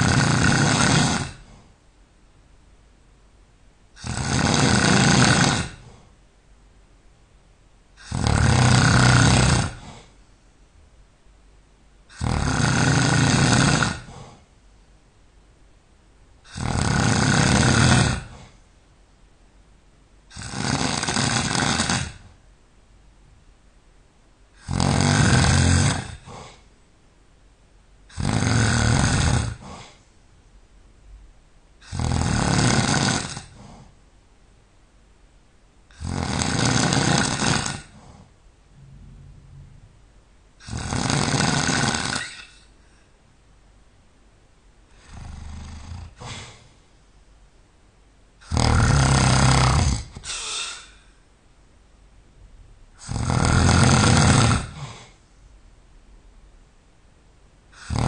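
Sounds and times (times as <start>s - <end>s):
person snoring loudly: 0.0s - 1.5s, 4.0s - 6.0s, 8.0s - 10.1s, 12.1s - 14.4s, 16.5s - 18.5s, 20.3s - 22.3s, 24.6s - 26.6s, 28.1s - 29.9s, 31.8s - 33.8s, 35.9s - 38.1s, 40.6s - 42.6s, 44.9s - 46.6s, 48.4s - 51.0s, 53.0s - 55.2s, 57.7s - 58.0s.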